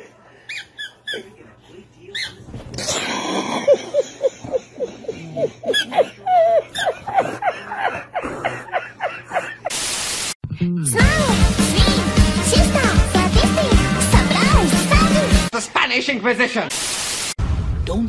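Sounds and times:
man laughing wheezily: 3.4 - 9.8
tv static hiss: 9.7 - 10.4, 15.6 - 17.4.

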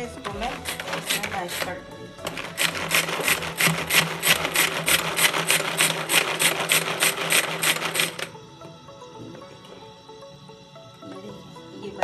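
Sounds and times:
food chopper blades whirring: 0.3 - 8.4
pull-cord strokes: 0.4 - 8.3.

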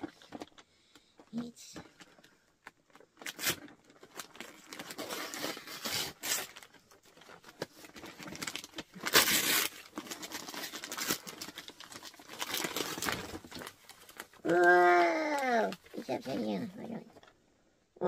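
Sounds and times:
wrapping paper tearing: 2.9 - 17.0.

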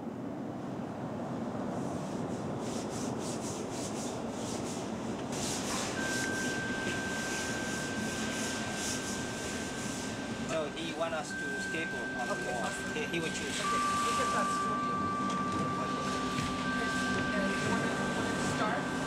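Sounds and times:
steady low hum: 0.0 - 19.0
rapid rubbing on a surface: 2.6 - 6.5
thin high whine: 2.7 - 19.0.

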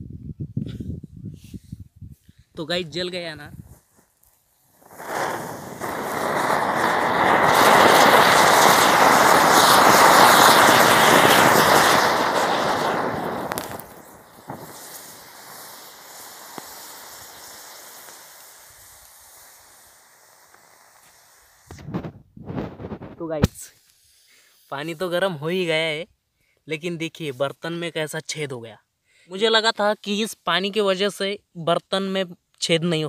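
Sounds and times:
fountain firework hissing and crackling: 4.4 - 25.8.

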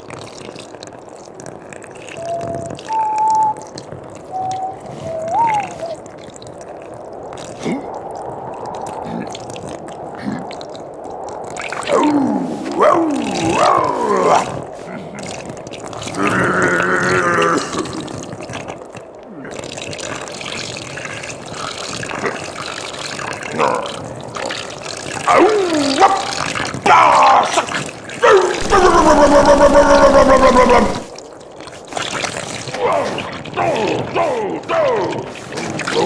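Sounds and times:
trickling splashing liquid stream: 0.0 - 36.0
wordless vocal whoops: 4.4 - 6.0, 11.8 - 14.5, 26.8 - 31.1.

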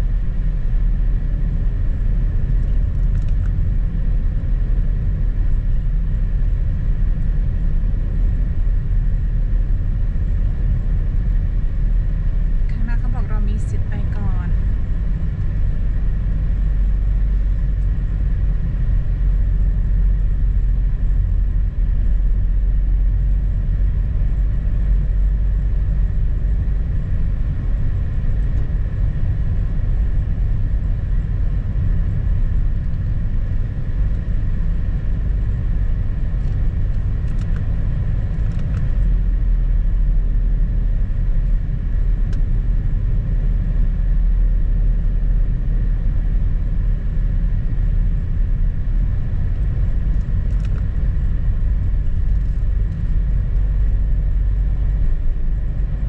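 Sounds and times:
car driving on snowy road: 0.0 - 56.0.

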